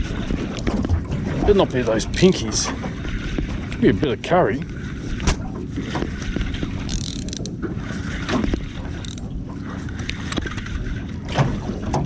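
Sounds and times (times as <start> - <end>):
fishing reel gears whirring: 6.6 - 10.9.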